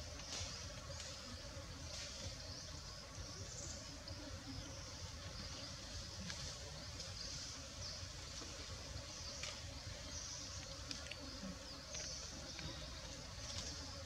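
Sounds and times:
faint clicks: 10.4s - 13.8s.

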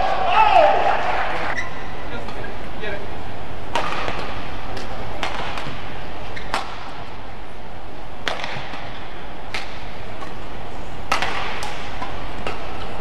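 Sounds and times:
murmur of large hall: 0.0s - 13.0s
rackets striking shuttlecock: 3.7s - 7.0s, 8.2s - 10.4s, 11.0s - 13.0s.

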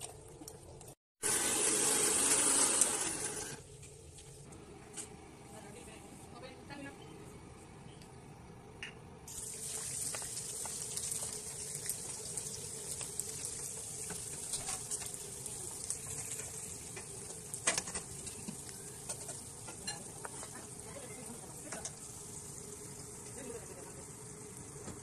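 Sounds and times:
onions sizzling in hot oil: 9.3s - 25.0s.

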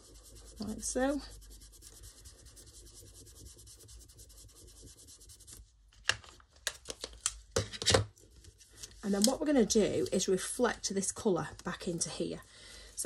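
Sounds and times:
cloth rubbing ink onto card: 0.0s - 5.7s.

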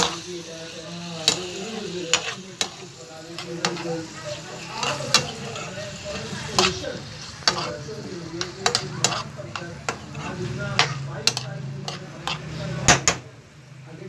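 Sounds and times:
spoon scraping a pan: 0.0s - 0.3s, 1.0s - 12.9s
food sizzling in a frying pan: 0.0s - 13.1s.

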